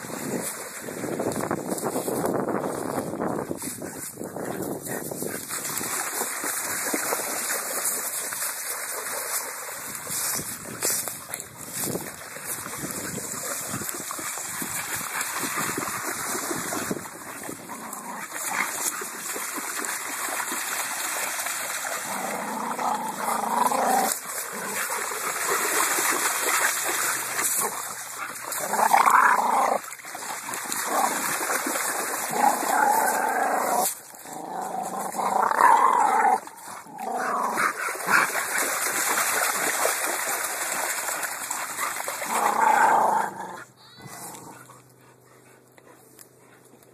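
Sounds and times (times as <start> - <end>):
creek water splashing: 0.0 - 46.9
dogs play-growling: 16.8 - 19.1, 21.8 - 40.2, 41.2 - 46.9.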